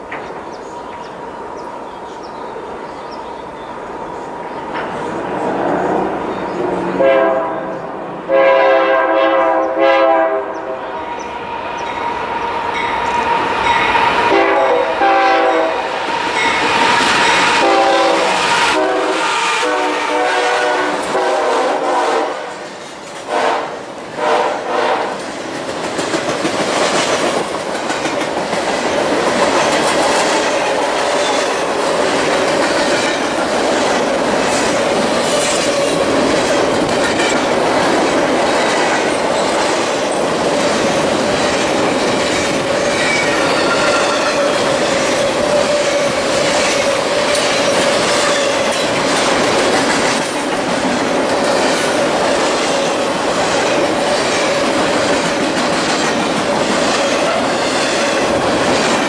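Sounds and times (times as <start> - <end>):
freight train rolling past: 0.0 - 59.0
train wheels clicking over rail joints: 25.1 - 59.0.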